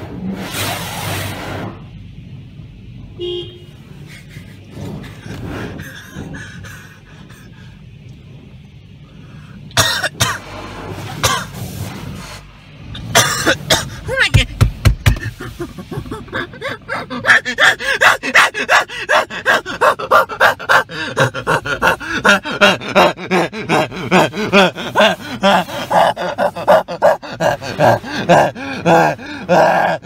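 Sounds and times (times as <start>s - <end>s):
person laughing hard: 4.0s - 7.6s, 15.0s - 30.0s.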